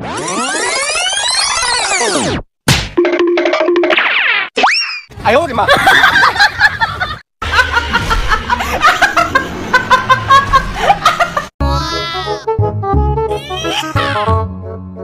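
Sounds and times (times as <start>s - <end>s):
woman laughing and snickering: 5.7s - 11.5s
music: 11.6s - 15.0s.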